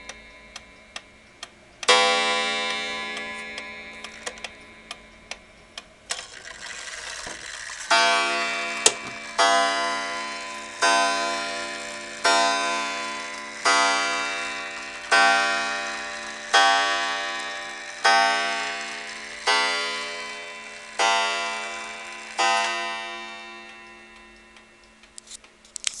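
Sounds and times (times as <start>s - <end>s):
clock striking: 0.0s - 25.2s
clock movement clicks: 0.0s - 26.0s.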